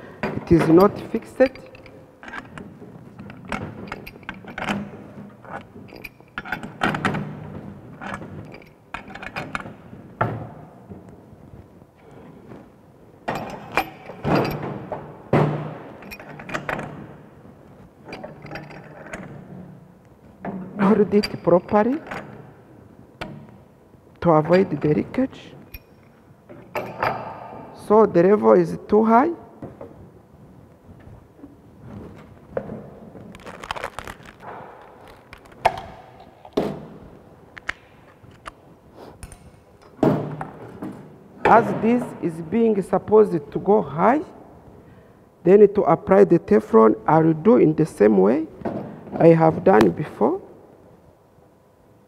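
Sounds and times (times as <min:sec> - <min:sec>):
metal clanks and knocks: 0:13.2 - 0:17.2, 0:25.7 - 0:27.8.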